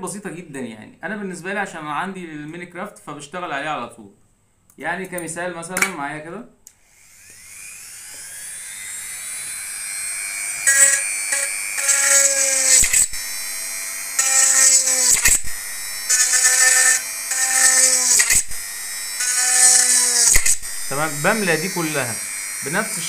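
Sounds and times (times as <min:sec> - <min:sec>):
rotary tool whining: 0:06.7 - 0:23.0
grinding into metal can: 0:10.6 - 0:23.0.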